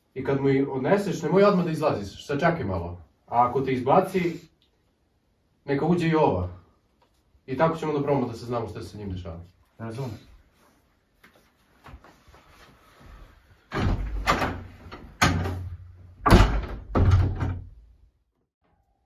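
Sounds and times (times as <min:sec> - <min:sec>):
door clicking: 0:13.7 - 0:17.7
door banging shut: 0:13.7 - 0:17.8.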